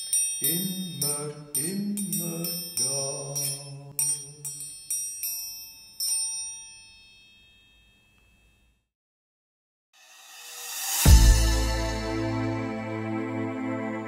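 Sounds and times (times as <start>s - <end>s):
metal percussion ringing bell-like: 0.0s - 8.2s.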